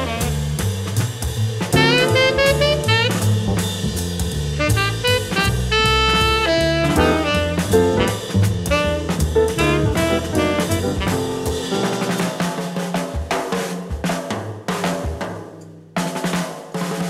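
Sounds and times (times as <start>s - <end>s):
saxophone playing jazz: 0.0s - 0.6s, 1.7s - 12.4s
drum kit: 0.0s - 17.0s
low bass line: 1.7s - 12.2s.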